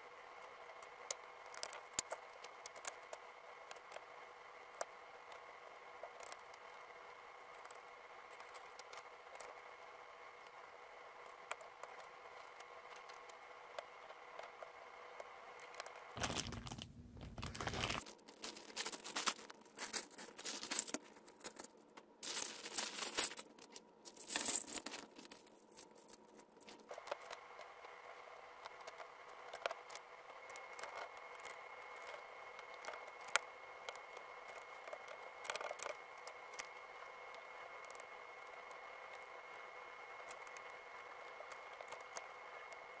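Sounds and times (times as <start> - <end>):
faint steady hum: 0.0 - 43.0
plastic crinkling and rustling: 16.2 - 27.3.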